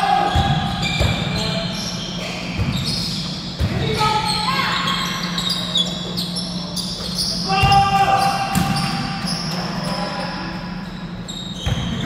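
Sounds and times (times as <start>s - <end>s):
sneakers squeaking: 0.0s - 12.0s
basketball bouncing on court: 0.2s - 1.5s, 7.0s - 9.4s, 11.6s - 12.0s.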